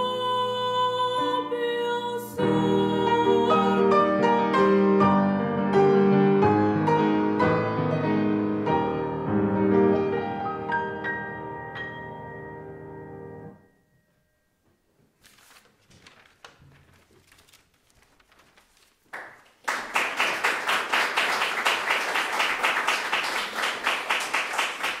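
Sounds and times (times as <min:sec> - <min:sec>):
audience applause: 0:19.1 - 0:25.0.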